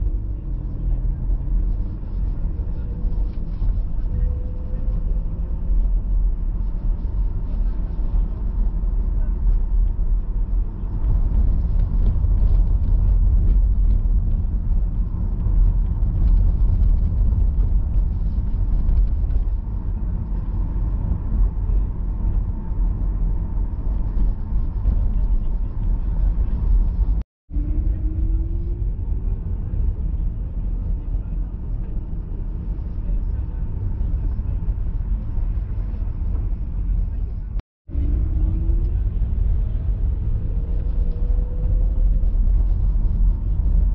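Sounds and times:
car interior rumble: 0.0s - 43.9s.

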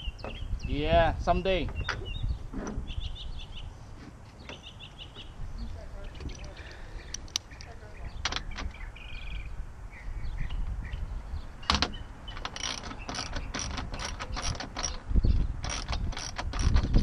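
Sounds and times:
ratchet wrench clicking: 11.7s - 17.0s.

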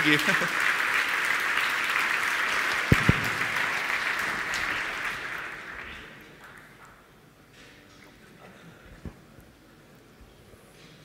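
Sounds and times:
audience applauding: 0.0s - 6.8s
low thumps: 2.9s - 3.6s.

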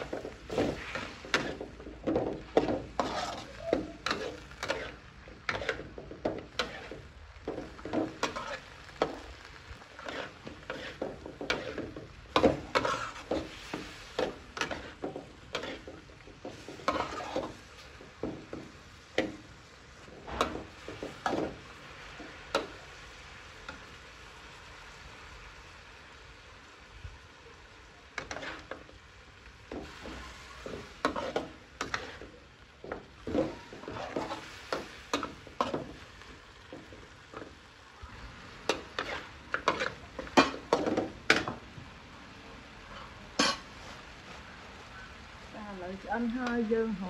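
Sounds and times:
metal spatula scraping wok: 0.0s - 23.1s, 28.2s - 29.0s, 29.7s - 37.7s, 38.6s - 41.6s, 42.8s - 44.2s
light sizzling: 0.0s - 47.0s.

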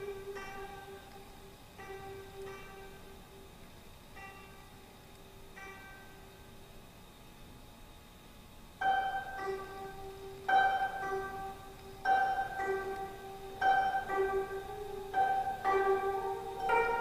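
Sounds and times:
plucked zither notes: 1.8s - 3.1s, 8.8s - 17.0s.

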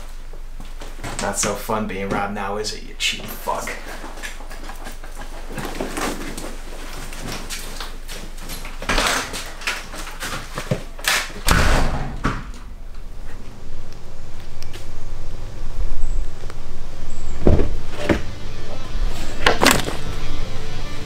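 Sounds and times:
deep thud: 11.5s - 12.7s.

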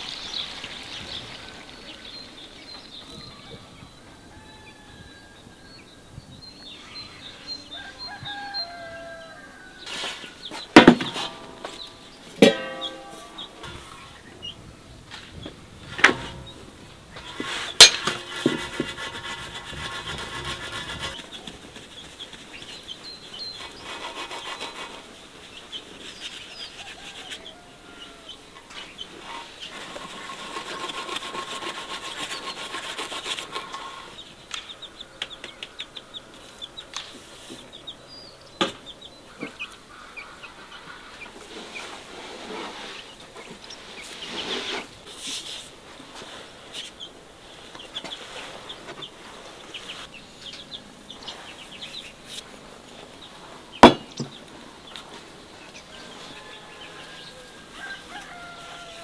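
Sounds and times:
sharp ringing knock: 12.4s - 13.5s
flour sifting through sieve: 17.2s - 25.2s.

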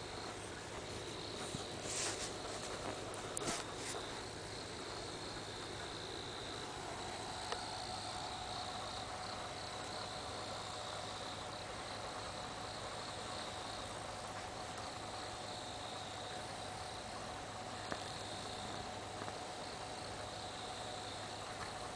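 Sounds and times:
crickets chirping: 0.0s - 21.9s
faint steady hum: 0.0s - 21.9s.

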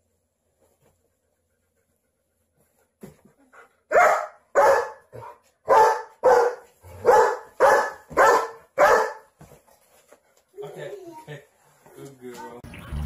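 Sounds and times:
dog barking loudly: 3.9s - 9.3s.

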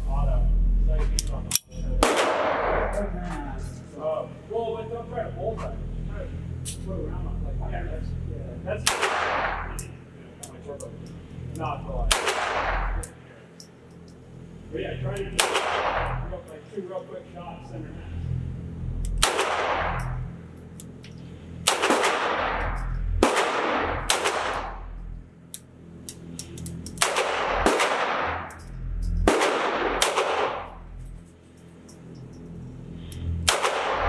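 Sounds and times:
pistol shots echoing indoors: 2.0s - 3.0s, 8.8s - 9.8s, 12.1s - 12.8s, 15.4s - 16.2s, 19.2s - 20.1s, 21.6s - 24.8s, 27.0s - 28.6s, 29.2s - 30.7s, 33.4s - 34.0s.

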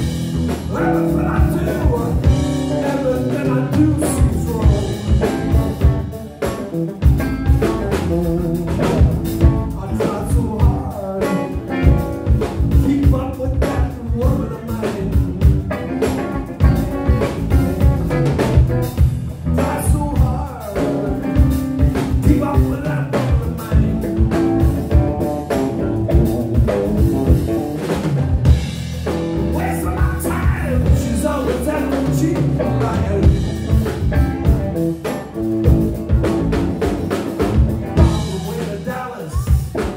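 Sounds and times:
electric bass: 0.0s - 39.9s
electric guitar: 0.0s - 39.9s
drum kit hits: 14.8s - 39.9s.

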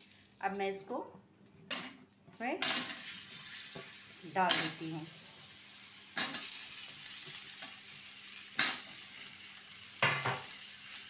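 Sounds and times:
frying hiss: 0.0s - 0.6s, 2.6s - 11.0s
oil sizzling sharply: 2.8s - 11.0s.

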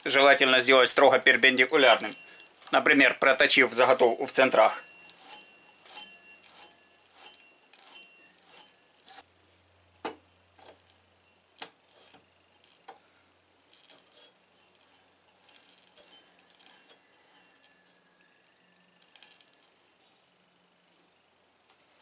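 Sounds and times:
metal tool rest knocks and clinks: 10.0s - 11.0s.

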